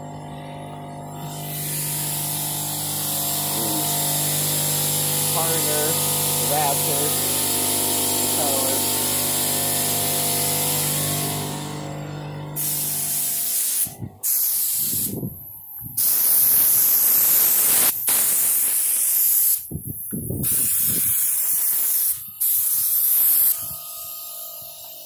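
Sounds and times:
machine hum: 0.0s - 17.0s
spray gun hissing: 1.3s - 11.7s, 12.6s - 15.2s, 16.0s - 19.7s, 20.4s - 23.6s.

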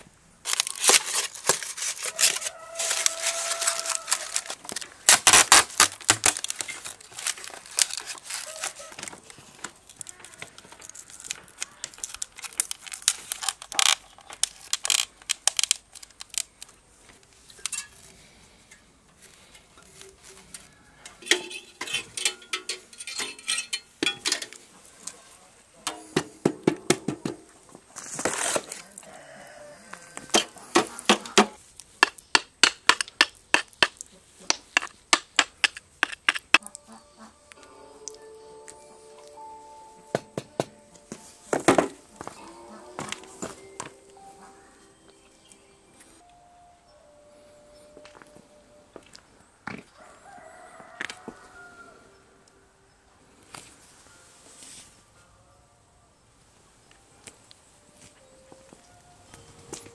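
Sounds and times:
packing material crinkling and tearing: 0.4s - 17.1s, 27.9s - 29.0s
handling clicks and knocks: 21.1s - 24.6s.

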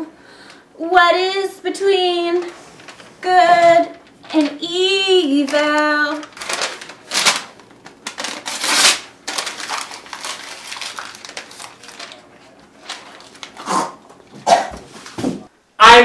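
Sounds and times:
paper rustling and crinkling: 2.2s - 15.4s.

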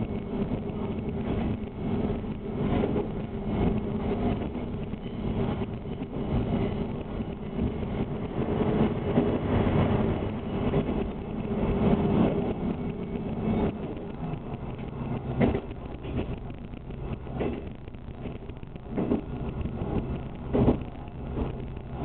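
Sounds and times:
train wheels on rails: 0.0s - 22.0s
diesel engine drone: 7.0s - 22.0s.

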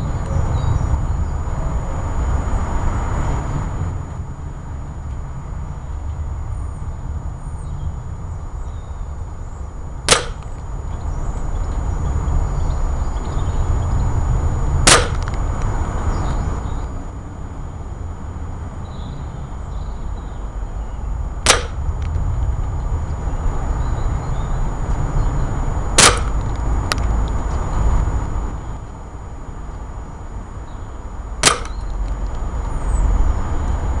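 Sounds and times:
steady low rumble: 0.0s - 34.0s
gunshot: 10.1s - 10.5s, 14.9s - 15.2s, 21.5s - 21.8s, 26.0s - 26.4s, 31.4s - 31.8s
sharp shot crack: 10.1s - 10.6s, 14.8s - 15.3s, 21.4s - 21.8s, 26.0s - 26.4s, 31.4s - 31.8s.

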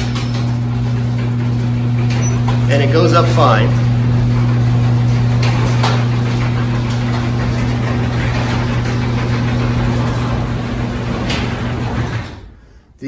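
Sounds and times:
garage door opener humming: 0.0s - 13.0s.

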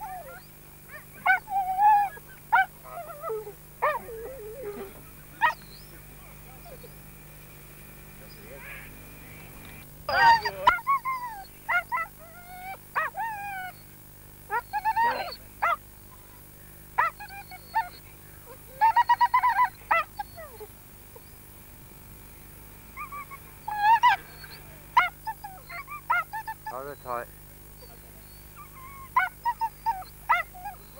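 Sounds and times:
dog whining and yelping: 0.0s - 5.9s, 10.1s - 13.9s, 14.5s - 15.8s, 17.0s - 18.0s, 18.7s - 21.4s, 23.0s - 26.7s, 27.8s - 30.9s.

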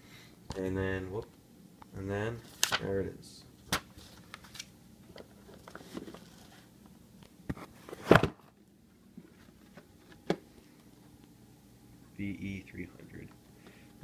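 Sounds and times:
cardboard box handling noise: 5.2s - 6.7s.

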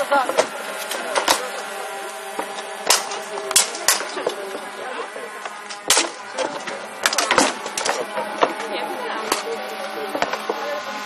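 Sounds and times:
swords clanging on armour: 2.4s - 4.4s, 5.6s - 8.6s.

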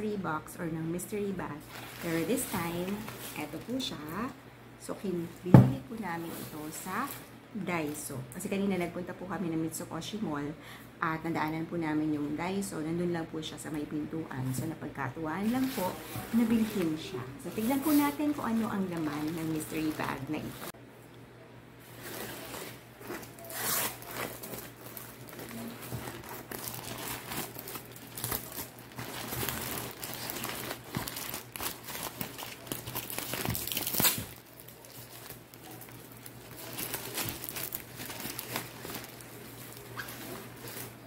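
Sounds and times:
gift bag crinkling and rustling: 1.5s - 4.2s, 15.4s - 20.7s, 21.9s - 41.0s
tape tearing: 22.0s - 39.2s.

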